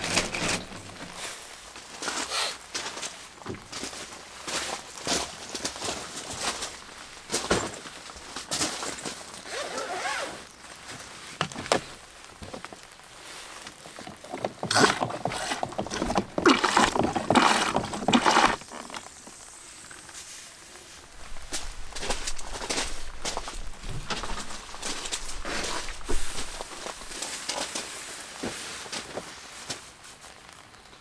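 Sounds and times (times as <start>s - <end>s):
camping toilet flushing: 0.0s - 1.5s, 13.3s - 19.8s
footsteps on gravel: 0.0s - 30.1s.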